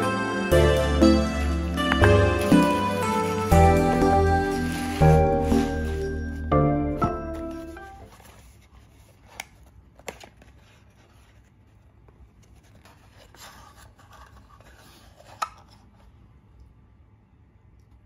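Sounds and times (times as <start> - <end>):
cardboard rustling and scraping: 1.8 - 16.1.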